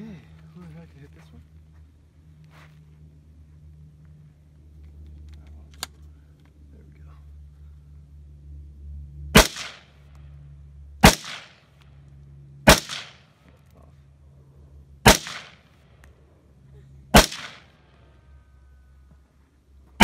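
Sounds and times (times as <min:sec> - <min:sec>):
gunshots with echo: 0:09.4 - 0:09.9, 0:11.0 - 0:11.6, 0:12.7 - 0:13.3, 0:15.0 - 0:15.6, 0:17.1 - 0:17.8.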